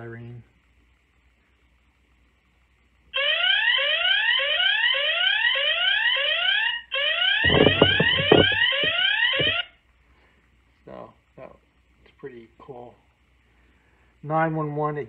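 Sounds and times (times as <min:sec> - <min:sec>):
dull knocks: 0:07.4 - 0:09.6.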